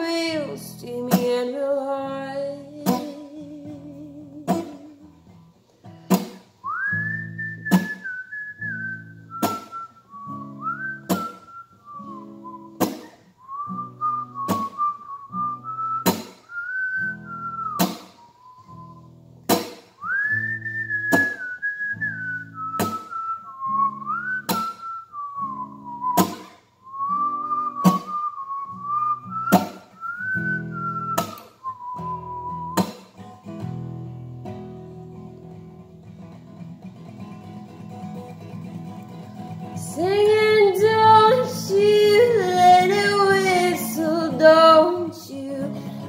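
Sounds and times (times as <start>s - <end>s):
acoustic guitar strumming: 0.0s - 46.0s
person whistling a melody: 6.6s - 19.2s, 20.0s - 33.2s.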